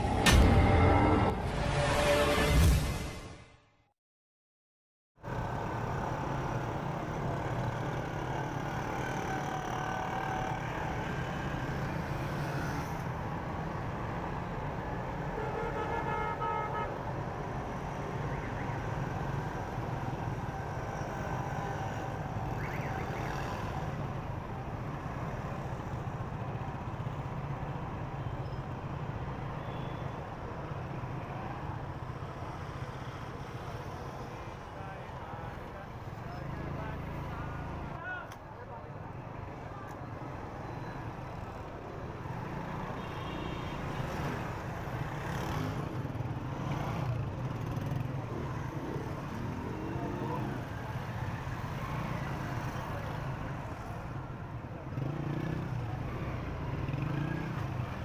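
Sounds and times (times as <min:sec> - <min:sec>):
surrounding traffic: 0:00.0 - 0:03.9, 0:05.2 - 0:58.0
vehicle horn: 0:15.4 - 0:17.0.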